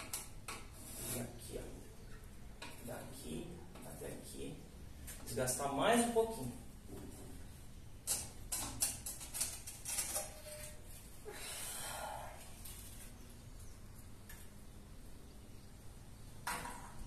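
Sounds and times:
breathy rush of noise: 11.2 - 12.9.

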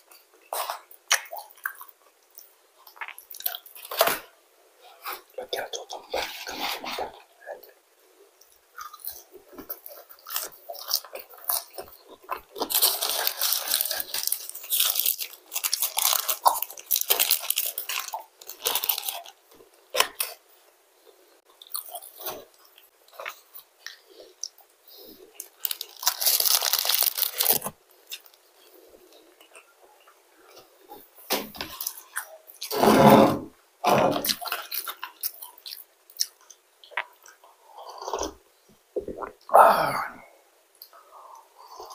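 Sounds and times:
chewing and crunching food: 0.0 - 32.8, 33.8 - 38.4
paper wrapper rustling: 12.6 - 19.4, 25.6 - 28.4.

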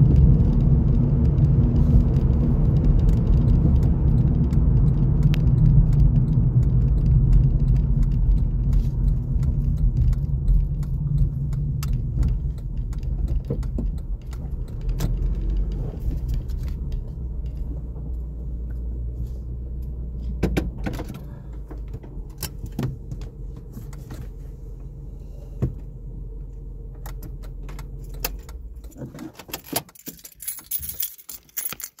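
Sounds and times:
car road noise rumble: 0.0 - 31.8
clicks and rattles: 2.4 - 18.3, 27.0 - 32.0
keys jingling: 28.3 - 32.0
metal clinks: 29.6 - 32.0.

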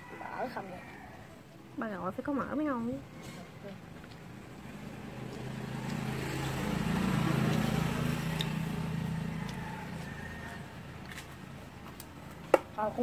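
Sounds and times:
vehicle engine passing by: 2.9 - 12.4.

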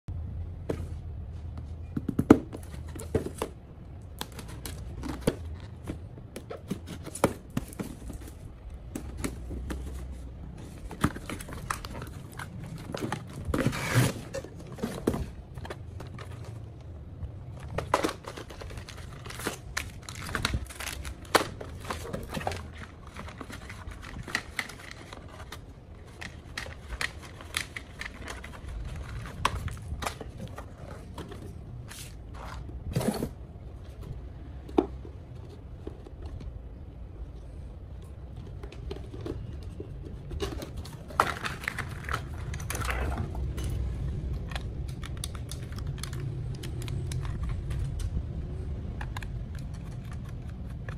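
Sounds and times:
packaging rustling: 4.1 - 33.4, 40.3 - 43.6
cardboard box being unpacked: 4.2 - 16.6, 17.6 - 33.4.

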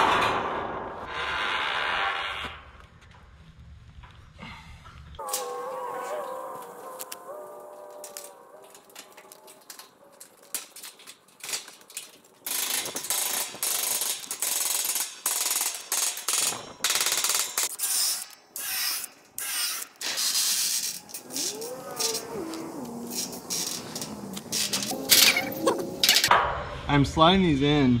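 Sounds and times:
wire panels clicking and rattling: 8.0 - 17.8, 20.0 - 26.3.

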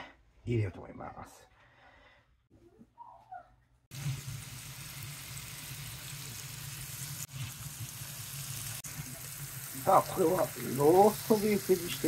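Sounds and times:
beef sizzling in a frying pan: 3.9 - 12.0.

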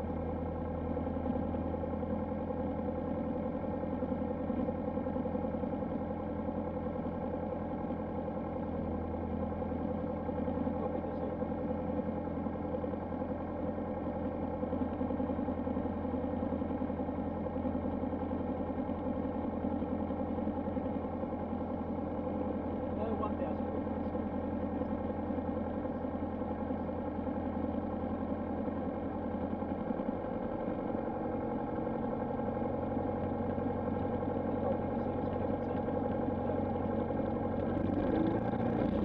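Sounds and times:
airplane engine idling: 10.4 - 39.0.

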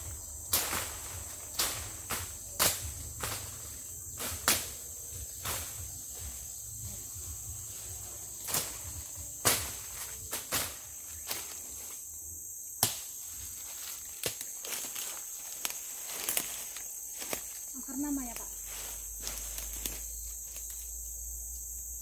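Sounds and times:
forest insects droning: 0.0 - 22.0
machete chopping brush: 0.4 - 5.8, 8.4 - 11.8, 12.8 - 15.0.

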